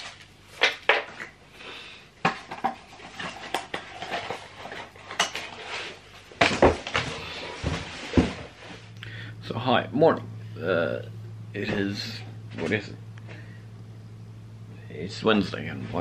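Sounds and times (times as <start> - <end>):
cardboard box rustling and scraping: 6.8 - 8.9.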